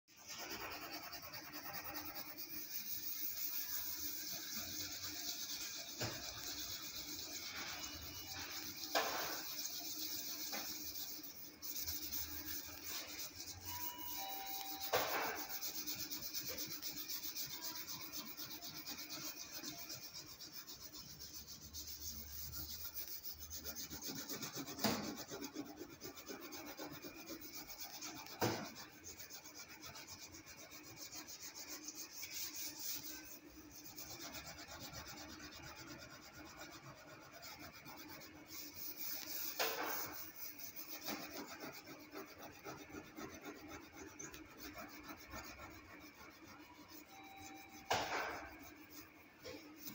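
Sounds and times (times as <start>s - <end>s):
sharp knocks: 47.9s - 48.5s.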